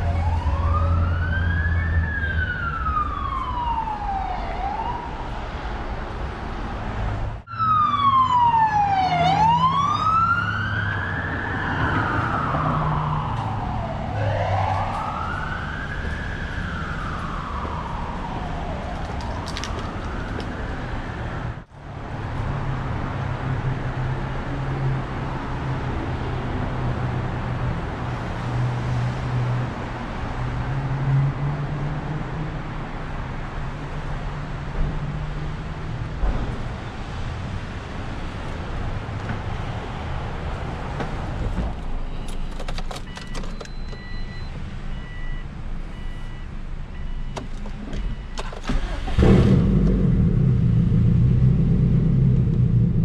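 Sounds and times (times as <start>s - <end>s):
siren wailing: 0.0s - 5.3s, 7.5s - 20.9s.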